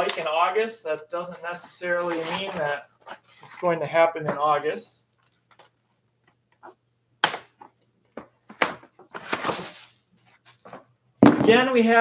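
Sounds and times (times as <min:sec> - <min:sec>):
scraping rustle of packaging: 0:01.8 - 0:03.6, 0:09.2 - 0:10.6.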